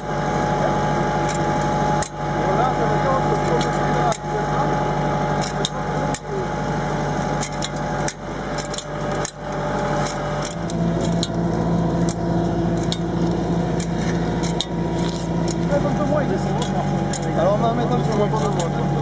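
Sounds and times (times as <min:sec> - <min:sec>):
tractor engine hum: 0:00.0 - 0:19.0
metallic clicks and knocks: 0:07.4 - 0:09.4.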